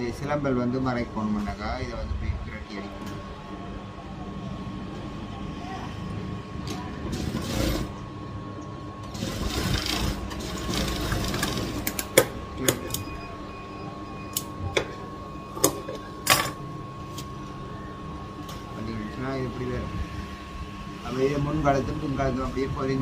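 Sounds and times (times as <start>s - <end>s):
steady hum: 0.0s - 23.0s
sewing machine stitching: 7.1s - 7.9s, 9.0s - 12.0s.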